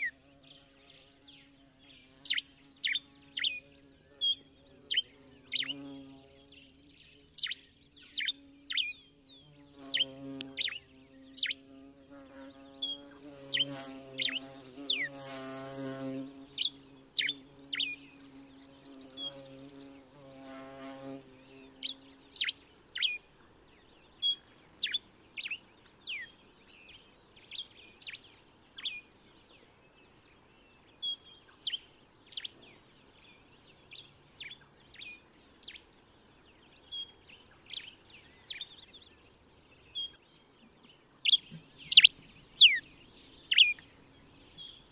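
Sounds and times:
finch chirping: 12.8 - 15.1, 41.2 - 42.8, 43.4 - 44.8.

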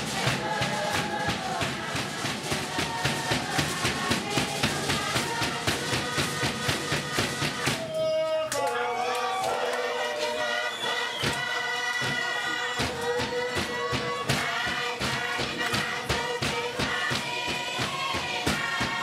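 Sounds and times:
group singing in chorus: 0.0 - 8.0, 8.6 - 19.0.

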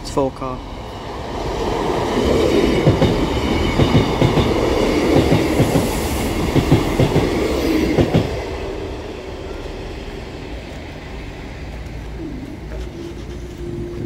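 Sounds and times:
train running noise: 0.0 - 14.0
wheels knocking on rail joints: 2.4 - 8.6.

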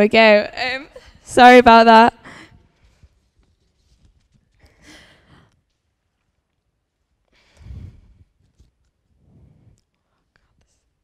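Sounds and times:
faint breaths into microphone: 7.3 - 10.9.

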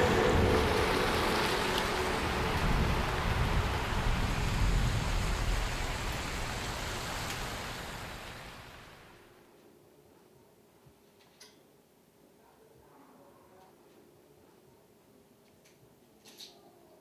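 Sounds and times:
low rumble: 0.0 - 8.2
rain hissing on wet pavement: 0.0 - 9.3.

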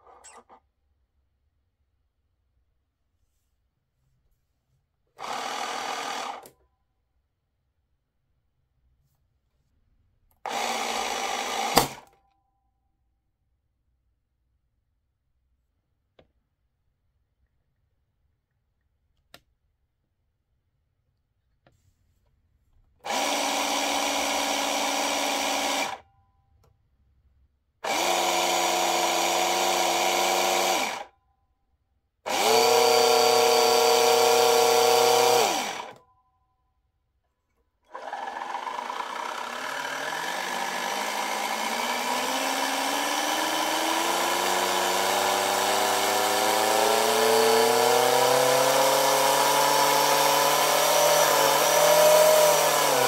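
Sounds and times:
small pump motor whirring: 23.1 - 26.0, 27.8 - 31.0, 32.3 - 36.0, 37.9 - 53.0.

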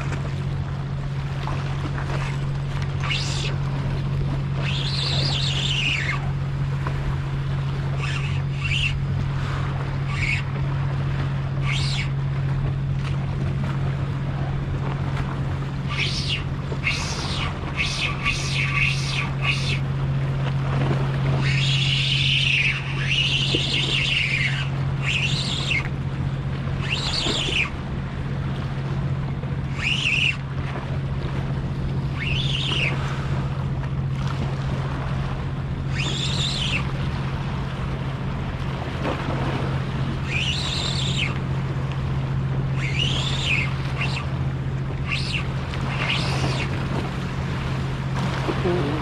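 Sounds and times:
steady low hum: 0.0 - 49.0
fishing reel whirring: 3.0 - 3.6, 4.5 - 6.3, 7.9 - 9.1, 10.0 - 10.5, 11.6 - 12.2, 15.8 - 19.8, 21.4 - 25.9, 29.7 - 30.4, 35.9 - 36.9, 40.2 - 41.4, 42.7 - 44.3, 45.0 - 46.8.

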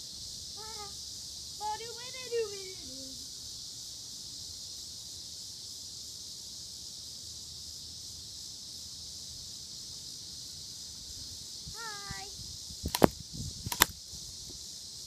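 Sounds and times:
high-pitched insect chorus: 0.0 - 15.0.

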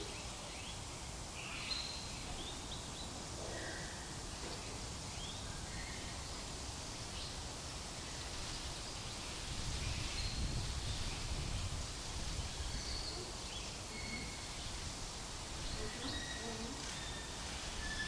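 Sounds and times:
low hiss: 0.0 - 18.0
faint high chirps: 13.9 - 14.6.

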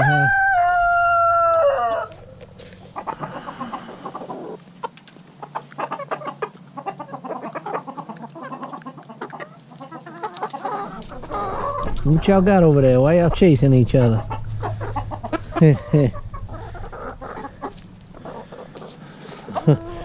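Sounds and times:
rooster crowing: 0.0 - 2.4
hens clucking softly: 1.2 - 20.0.

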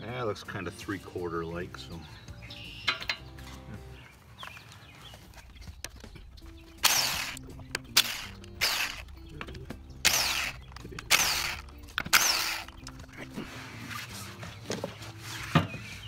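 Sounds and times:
impact wrench hammering: 6.8 - 9.0, 10.0 - 12.8.

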